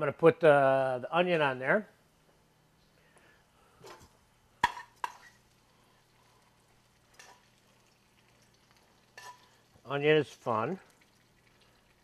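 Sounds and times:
metal tongs clacking on pan: 9.2s - 9.5s
tongs scraping pan: 9.2s - 9.6s.

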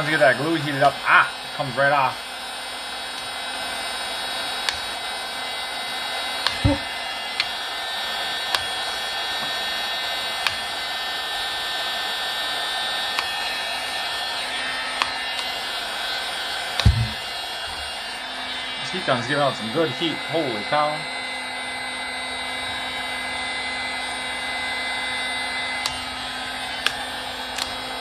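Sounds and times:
heat gun fan blowing: 0.0s - 28.0s
soft thump: 16.8s - 17.2s.

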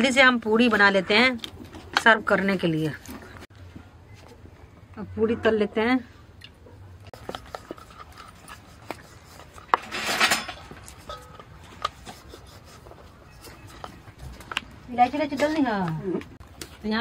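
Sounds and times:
utensils and cookware clinking: 7.2s - 12.3s.

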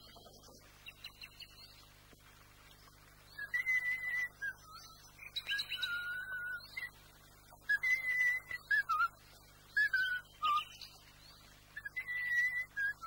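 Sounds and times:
person whistling a slow tune: 7.7s - 9.1s, 11.8s - 13.0s.

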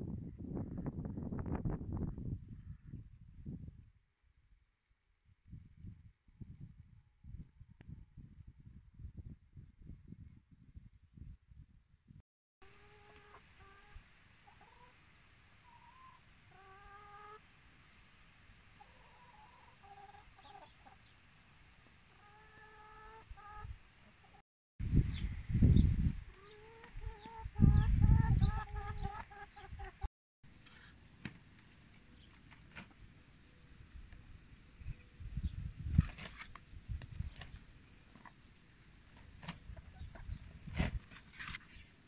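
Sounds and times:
hens clucking: 12.8s - 15.0s, 15.6s - 17.5s, 18.8s - 21.1s, 22.1s - 24.4s, 26.3s - 30.1s, 39.4s - 40.4s
low rumble on microphone: 24.8s - 26.3s.

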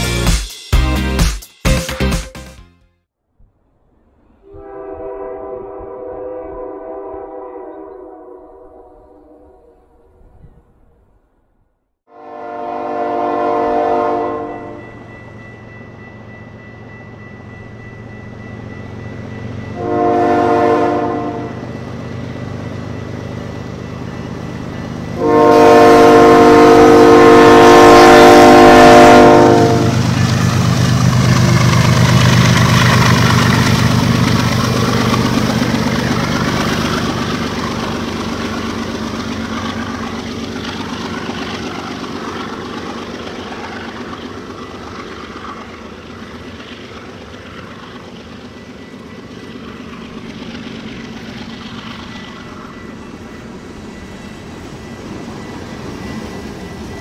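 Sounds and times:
locomotive air horn blasts: 4.5s - 9.5s, 12.1s - 14.8s, 19.8s - 21.7s, 25.2s - 30.1s
locomotive engine rumbling: 12.3s - 57.0s
train wheels rumbling: 12.4s - 57.0s.

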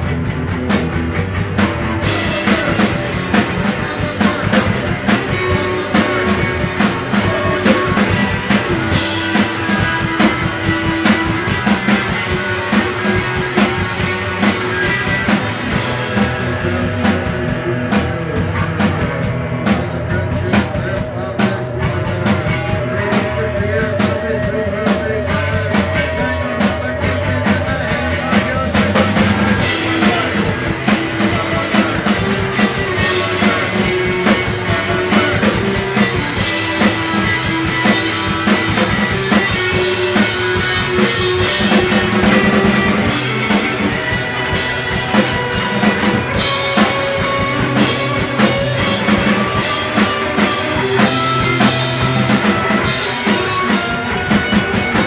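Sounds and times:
drum kit steady beat: 0.0s - 55.0s
rock band playing: 0.0s - 55.0s.

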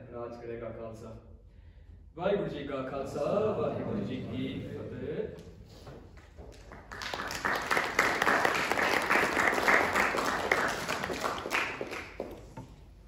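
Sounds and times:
audience applauding: 6.4s - 12.6s.

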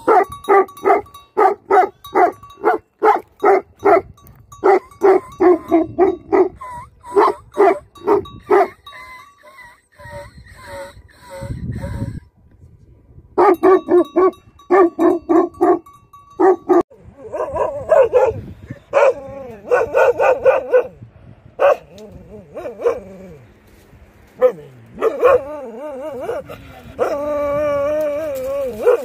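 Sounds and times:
dogs barking deeply: 16.4s - 21.0s, 21.6s - 23.4s, 24.4s - 27.2s.

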